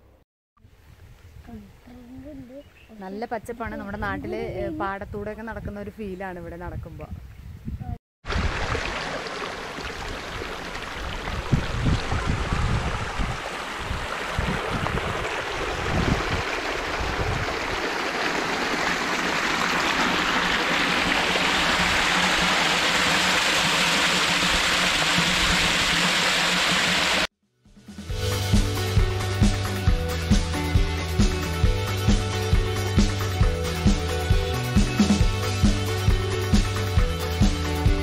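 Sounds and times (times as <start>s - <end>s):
water gushing into tank: 8.2s - 27.3s
water rushing in channel: 8.2s - 27.3s.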